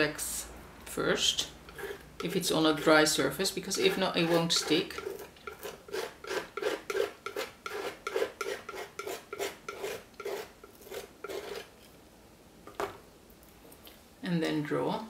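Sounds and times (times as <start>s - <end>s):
palette knife scraping a panel: 1.7s - 2.9s, 3.7s - 11.7s.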